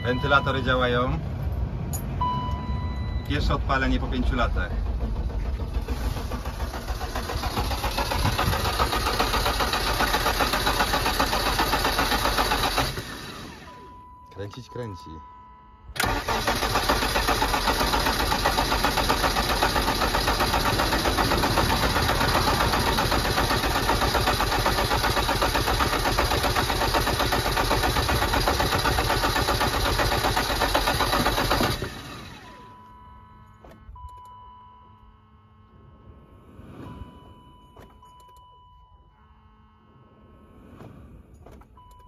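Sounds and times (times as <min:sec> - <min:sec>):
engine cranking on starter motor: 0:03.4 - 0:13.8, 0:15.9 - 0:32.7.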